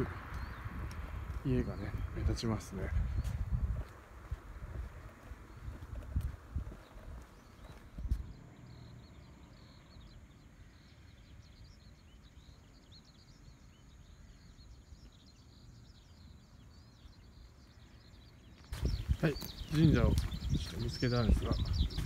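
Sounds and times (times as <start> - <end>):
bird chirps: 0.0 - 3.7, 4.8 - 22.0.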